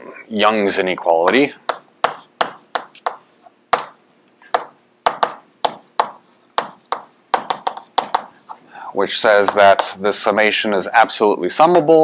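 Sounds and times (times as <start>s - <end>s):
chalk tapping on blackboard: 1.3s - 8.5s, 9.4s - 10.0s.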